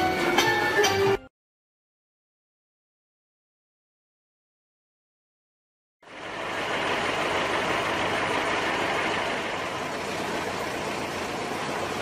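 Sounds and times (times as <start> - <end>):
street traffic: 6.0 - 12.0.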